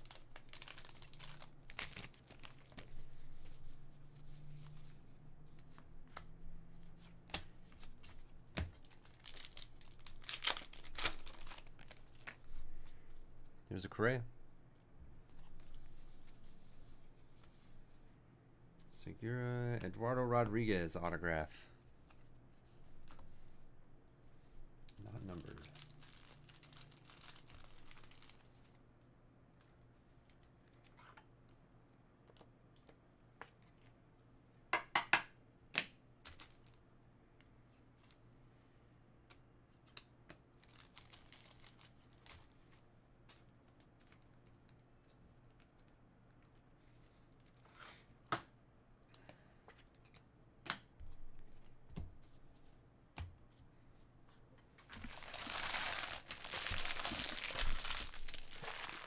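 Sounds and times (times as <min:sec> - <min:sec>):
rustle of cards and packaging: 0:00.0 - 0:13.0, 0:25.0 - 0:28.8, 0:36.2 - 0:36.8, 0:39.8 - 0:48.2, 0:54.8 - 0:59.0.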